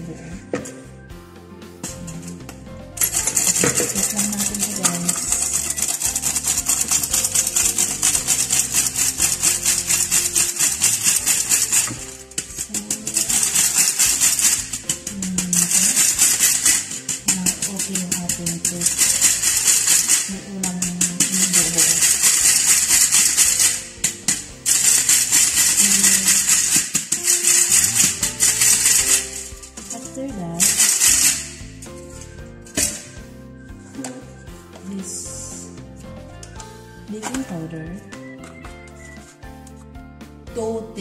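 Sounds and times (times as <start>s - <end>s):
flour sifter rasping: 1.9s - 34.2s.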